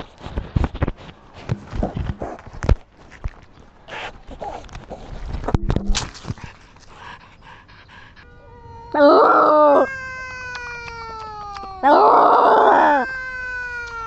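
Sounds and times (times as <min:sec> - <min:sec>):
drawn-out animal cries: 0:08.2 - 0:14.0.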